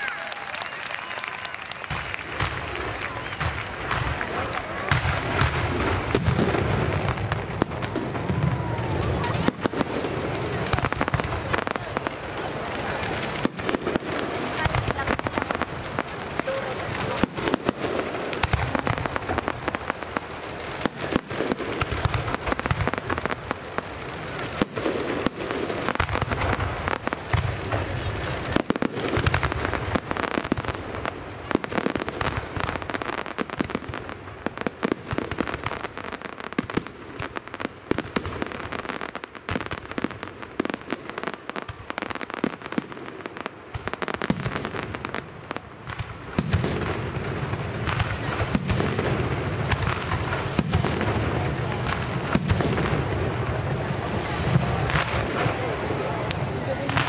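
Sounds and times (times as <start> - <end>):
fireworks bangs and crackling: 0.0 - 57.0
low firework booms: 1.8 - 57.0.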